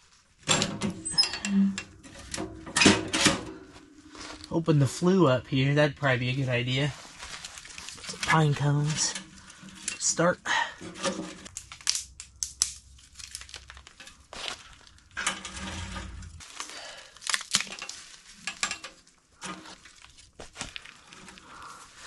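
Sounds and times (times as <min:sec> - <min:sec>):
twigs and bark crackling: 0:06.0 - 0:10.3, 0:11.4 - 0:15.3, 0:16.4 - 0:22.0.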